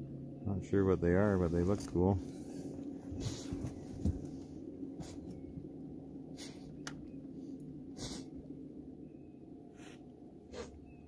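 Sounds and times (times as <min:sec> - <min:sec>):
low steady rumble: 0:00.0 - 0:11.0.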